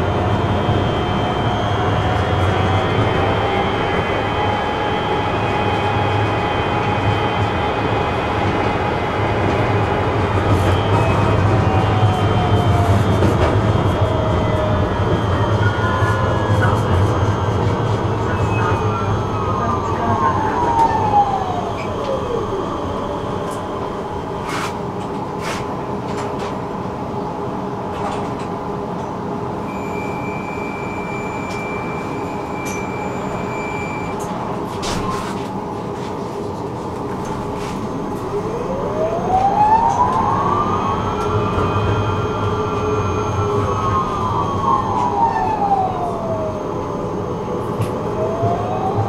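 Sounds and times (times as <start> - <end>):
high steady beep: 29.7 - 34.2.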